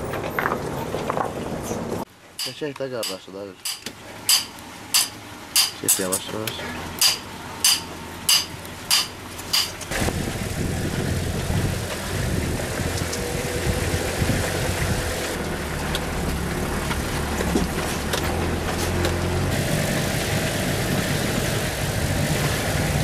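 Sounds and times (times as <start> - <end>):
hammer clanging on metal: 2.4 - 6.4, 7.0 - 9.9
engine running at low revs: 6.4 - 23.0.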